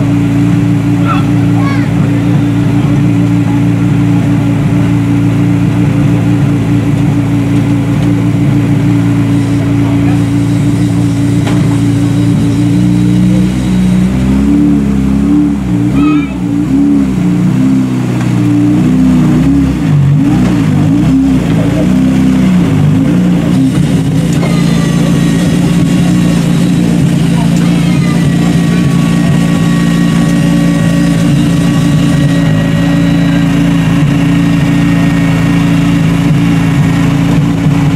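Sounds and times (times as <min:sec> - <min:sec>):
car engine idling and revving: 0:00.0 - 0:37.9.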